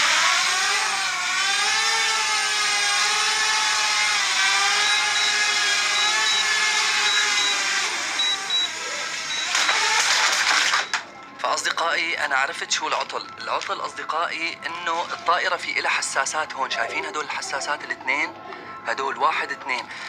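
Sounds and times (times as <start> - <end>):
drone motors whining: 0.0 - 11.0.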